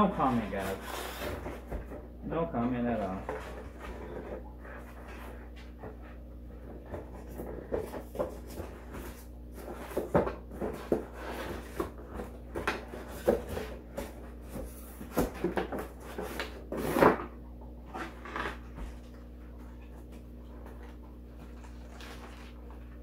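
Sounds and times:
cardboard box scraping: 0.1 - 1.9, 3.1 - 5.6
plastic packaging rustling: 21.5 - 23.0.

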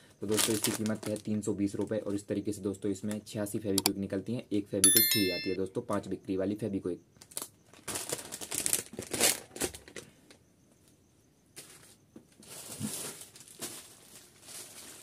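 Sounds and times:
plastic packaging crinkling: 0.2 - 1.3, 7.2 - 10.0, 12.4 - 15.0.

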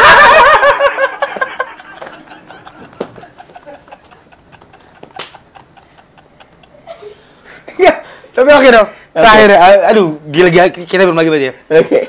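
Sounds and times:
people laughing: 0.0 - 8.2.

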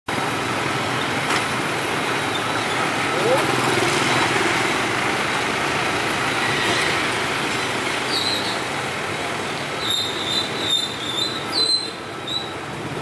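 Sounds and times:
traffic engine and tyre noise: 0.1 - 13.0
train wheels squealing: 8.1 - 8.6, 9.8 - 12.6.

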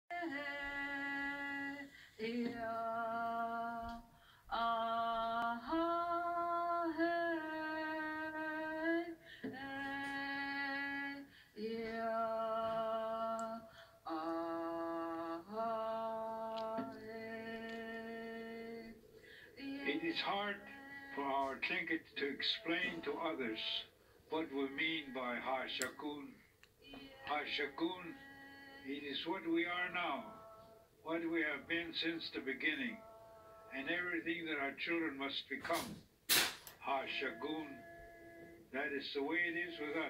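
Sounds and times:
person singing held notes: 19.6 - 31.8, 36.7 - 40.0.

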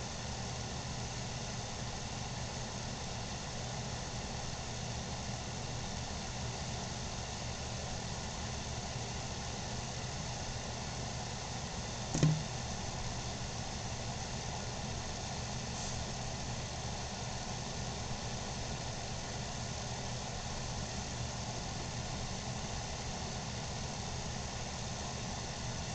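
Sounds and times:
low mechanical hum: 0.0 - 25.9
short knock: 12.1 - 12.6.

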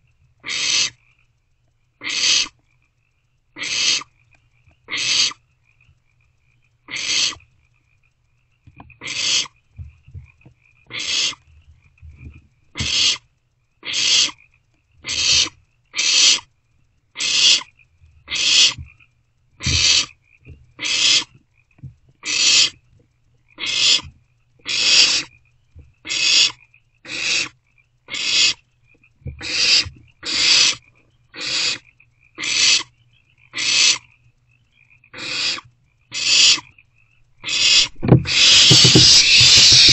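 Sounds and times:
owlets hissing begging calls: 0.4 - 1.0, 2.0 - 2.5, 3.6 - 4.1, 4.9 - 5.4, 6.9 - 7.4, 9.0 - 9.6, 10.9 - 11.4, 12.8 - 13.2, 13.8 - 14.4, 15.0 - 16.4, 17.2 - 17.7, 18.3 - 18.8, 19.6 - 20.1, 20.8 - 21.3, 22.3 - 22.8, 23.6 - 24.1, 24.7 - 25.3, 26.1 - 27.5, 28.1 - 28.6, 29.4 - 30.8, 31.4 - 31.8, 32.4 - 32.9, 33.6 - 34.1, 35.2 - 36.7, 37.4 - 39.9.

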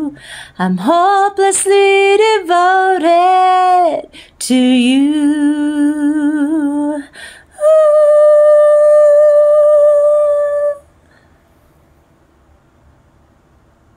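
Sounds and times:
woman singing unaccompanied: 0.0 - 10.9
woman taking a breath: 0.2 - 0.6, 7.1 - 7.5.

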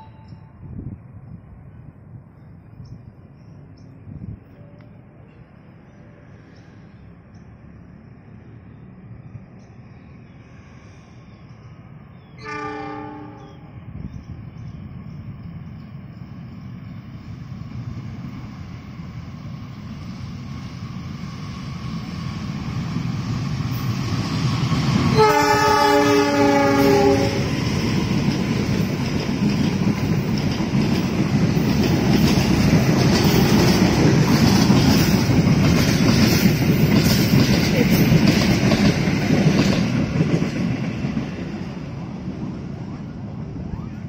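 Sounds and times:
locomotive rumble: 0.6 - 44.0
multi-tone train horn: 12.4 - 13.7, 25.1 - 27.6
train wheels clattering: 26.8 - 41.8.

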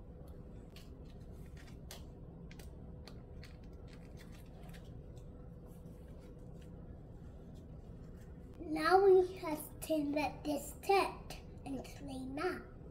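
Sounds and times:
low room hum: 0.0 - 12.9
crumbly mixture clicking and crackling: 0.7 - 5.4.

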